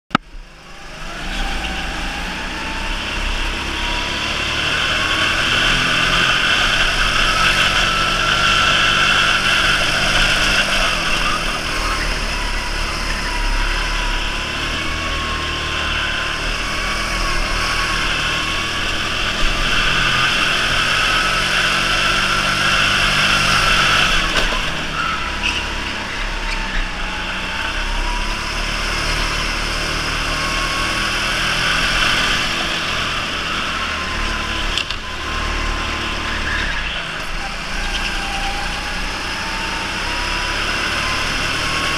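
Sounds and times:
electric motor whine: 0:00.6 - 0:41.9.

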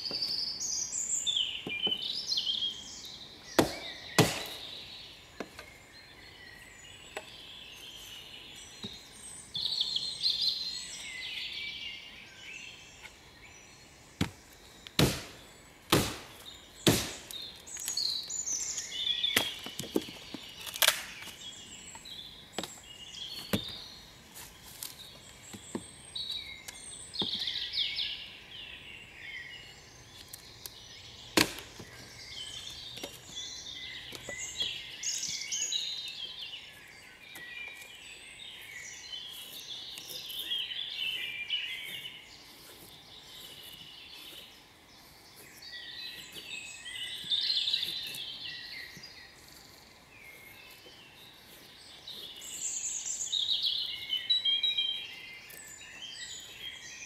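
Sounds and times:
birds singing: 0:00.0 - 0:57.0
axe striking wood: 0:03.5 - 0:04.8, 0:14.2 - 0:17.5, 0:19.3 - 0:21.3, 0:31.3 - 0:32.0.

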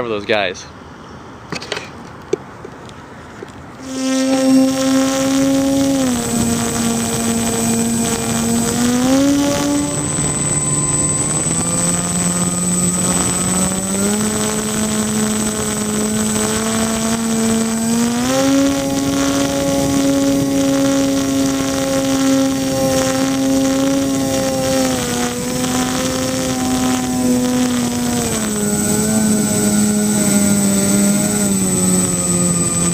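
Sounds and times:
electric motors buzzing drone: 0:03.8 - 0:32.9.

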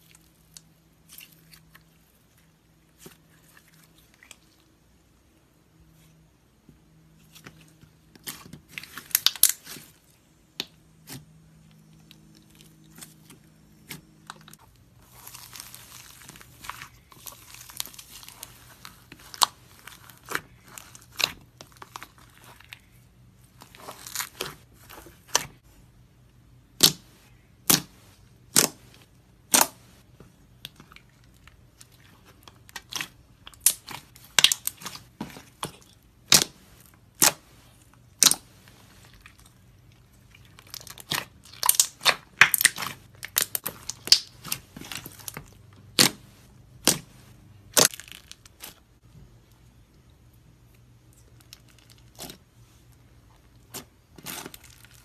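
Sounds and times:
fingers squishing slime: 0:26.6 - 0:48.9.

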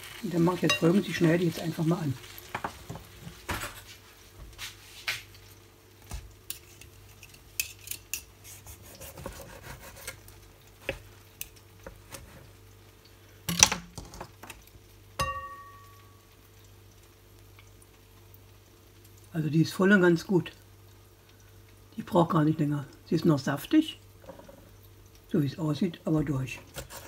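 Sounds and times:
cutlery scraping and tapping: 0:06.5 - 0:08.3
ringing clink: 0:15.2 - 0:16.0.

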